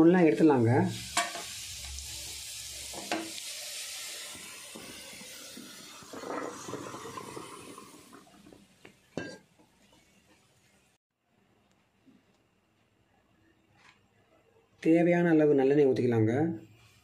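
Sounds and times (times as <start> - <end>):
vegetables sizzling in oil: 0.0 - 8.8.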